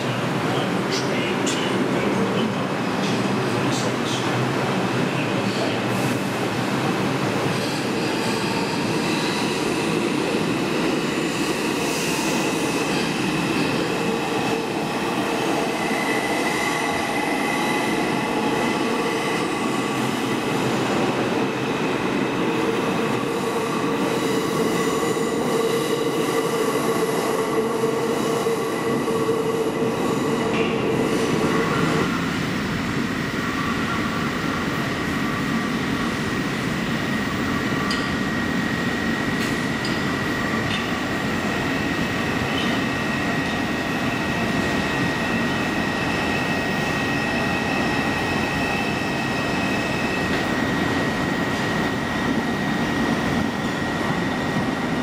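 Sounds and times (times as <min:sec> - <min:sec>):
subway train wheels and running gear: 0:00.0 - 0:55.0.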